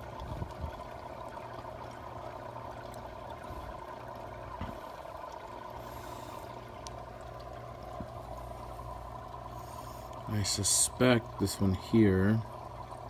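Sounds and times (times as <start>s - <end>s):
aquarium water trickling: 0.0s - 13.0s
low steady hum: 0.0s - 13.0s.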